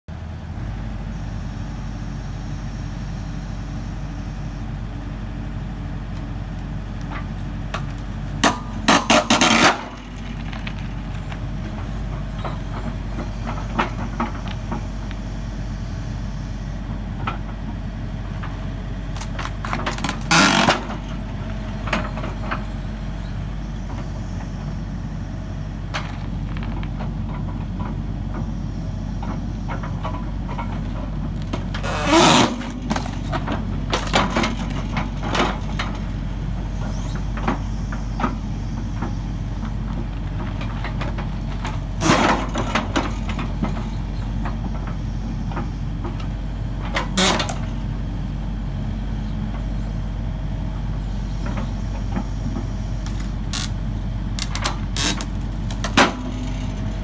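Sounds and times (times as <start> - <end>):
diesel engine running: 0.1 - 57.0
log splitter forcing through log: 7.7 - 14.9, 19.1 - 21.2, 29.9 - 36.0, 53.0 - 56.8.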